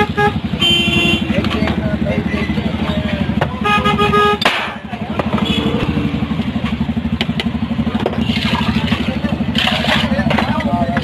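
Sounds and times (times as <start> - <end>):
vehicle horn: 0.0 - 1.5, 3.6 - 4.5, 5.3 - 6.2
engine idling: 0.0 - 11.0.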